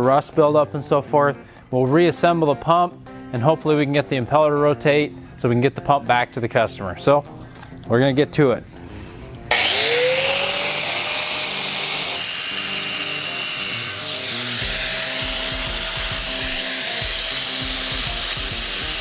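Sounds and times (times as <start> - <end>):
angle grinder grinding metal: 9.5 - 19.0.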